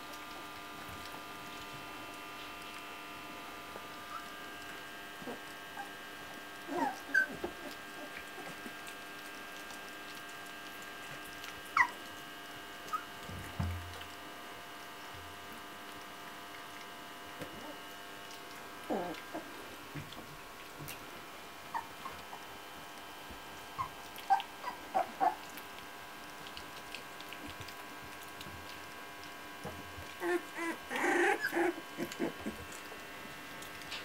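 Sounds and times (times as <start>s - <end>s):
puppies squeaking and whimpering: 6.6s - 8.6s, 11.7s - 12.0s, 12.9s - 13.1s, 18.9s - 19.6s, 21.7s - 22.5s, 23.8s - 25.5s, 30.2s - 32.8s.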